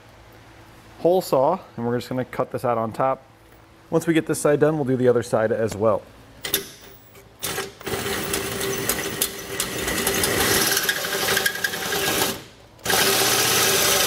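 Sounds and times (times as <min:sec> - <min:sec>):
drill hole saw cutting metal: 0:07.4 - 0:14.0.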